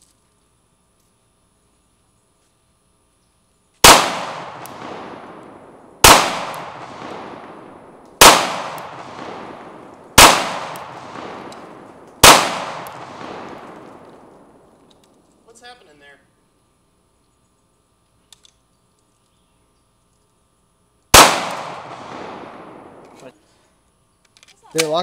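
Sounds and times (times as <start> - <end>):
pistol shots with echo: 3.8 - 14.6, 21.1 - 23.1.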